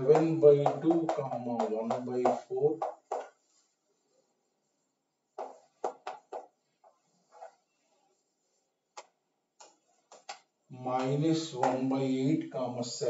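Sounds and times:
chalk tapping and scraping on blackboard: 0.0s - 3.8s, 5.3s - 12.0s.

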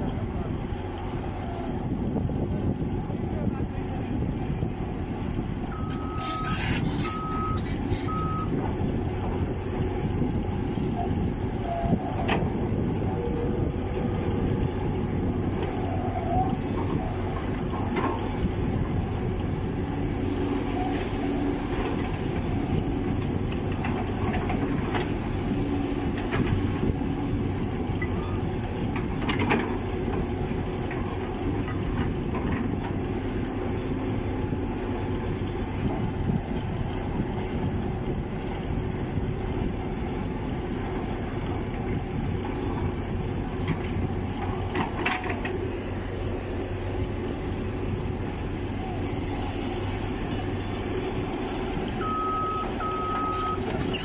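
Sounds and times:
diesel engines running: 0.0s - 54.0s
backup alarm beeps: 5.7s - 6.5s, 7.1s - 8.5s, 52.0s - 53.6s.

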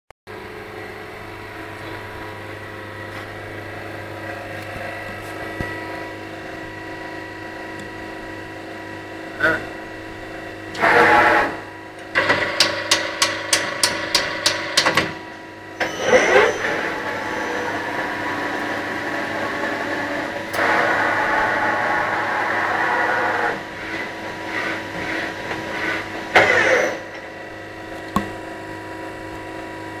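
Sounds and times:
mains hum: 0.3s - 30.0s
lathe motor and servo whine: 10.7s - 11.9s, 15.2s - 29.0s.

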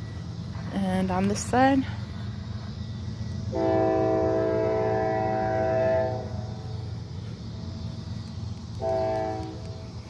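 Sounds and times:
train rumble: 0.0s - 10.0s
locomotive air horn blast: 3.5s - 6.4s, 8.8s - 9.6s.

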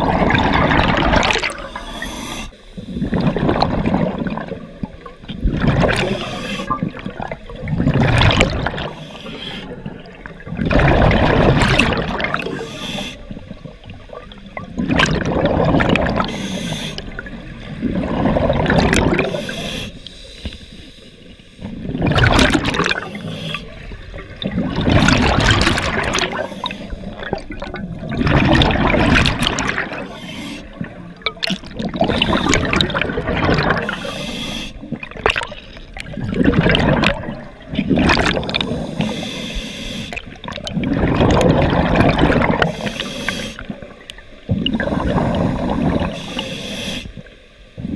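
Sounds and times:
hissing regulator inhalations: 1.6s - 3.0s, 6.0s - 6.8s, 8.9s - 9.8s, 12.5s - 13.4s, 16.3s - 17.2s, 19.2s - 21.8s, 23.0s - 23.9s, 26.1s - 27.2s, 29.9s - 30.9s, 33.8s - 34.9s, 38.6s - 40.3s, 42.6s - 43.7s, 44.8s - 47.3s
bubbling exhalations: 5.4s - 9.0s, 14.8s - 19.6s, 21.8s - 34.2s, 34.8s - 39.2s, 40.1s - 42.9s.

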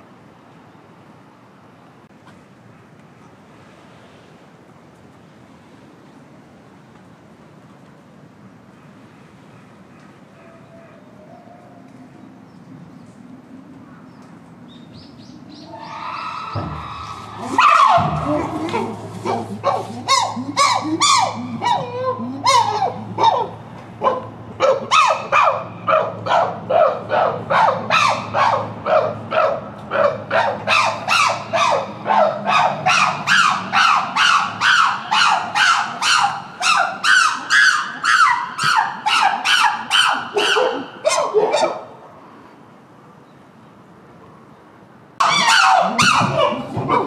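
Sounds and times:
chimpanzees hooting: 15.6s - 23.7s, 24.7s - 41.7s, 45.2s - 47.0s.

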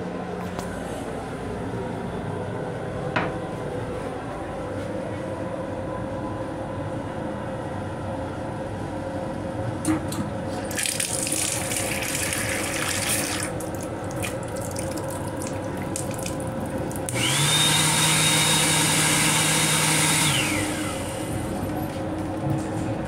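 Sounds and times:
faucet water running into sink: 10.7s - 17.2s
hand dryer whining: 17.0s - 23.0s.

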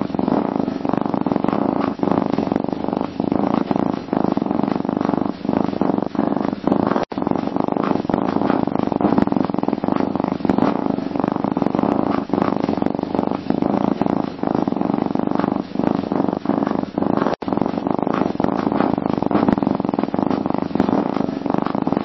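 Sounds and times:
cat purring: 0.0s - 22.0s.

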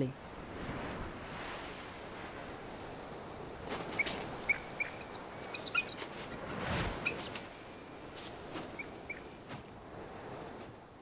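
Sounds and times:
eagles chirping: 4.0s - 6.0s, 7.0s - 7.4s, 8.6s - 9.3s.

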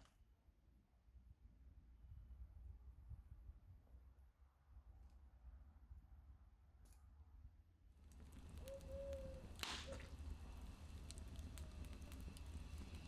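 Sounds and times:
wood fire crackling: 8.0s - 13.0s.

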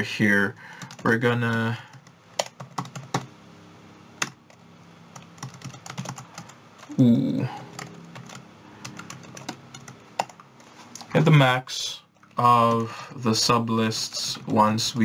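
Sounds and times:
keyboard typing clicks: 7.7s - 10.4s.

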